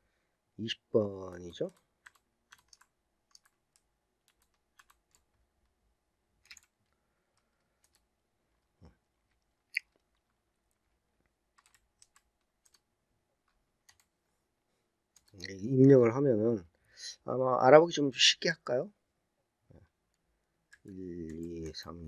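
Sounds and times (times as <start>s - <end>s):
computer keyboard typing: 1.6s - 5.3s, 6.5s - 6.8s, 7.8s - 8.1s, 11.6s - 12.8s, 13.8s - 14.1s, 15.2s - 15.5s.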